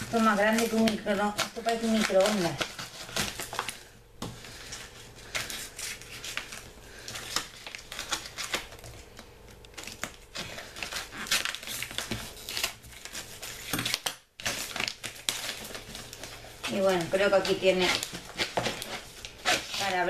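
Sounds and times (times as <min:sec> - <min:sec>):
scissors cutting paper: 0:00.0 - 0:03.7, 0:09.7 - 0:20.0
packaging crinkling and rustling: 0:00.0 - 0:20.0.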